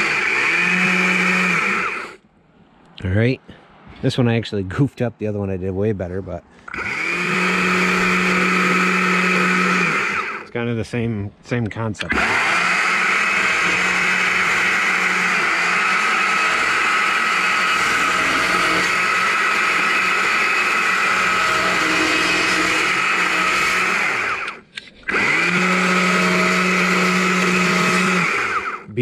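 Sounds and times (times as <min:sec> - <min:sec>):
chainsaw cutting log: 0:00.0 - 0:02.2, 0:06.7 - 0:10.5, 0:12.0 - 0:28.9.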